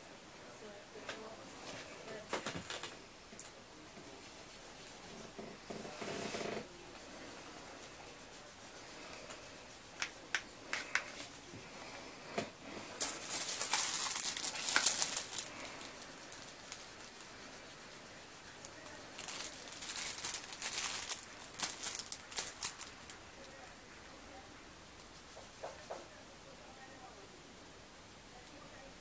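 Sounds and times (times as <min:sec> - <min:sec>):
rustling: 0:01.1 - 0:23.7.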